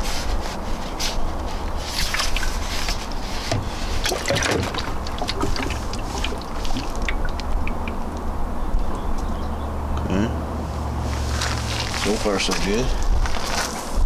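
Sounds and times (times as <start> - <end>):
steady low rumble: 0.6 - 13.6
water sloshing and glugging in jug: 1.6 - 8.2.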